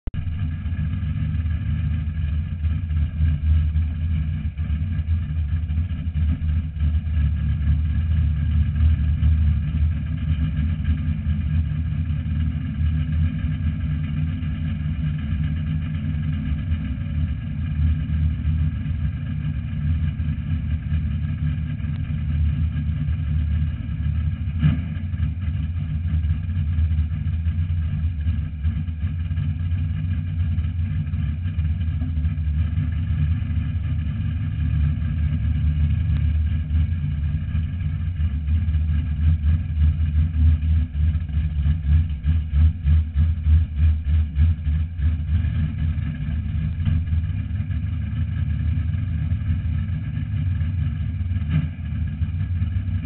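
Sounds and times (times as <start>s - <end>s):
race car engine idling: 0.0s - 53.0s.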